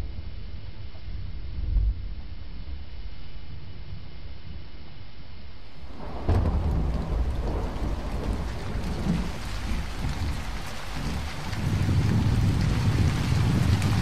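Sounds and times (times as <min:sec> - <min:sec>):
steady rain: 0:05.7 - 0:14.0
thunderclap rumbling: 0:05.8 - 0:14.0.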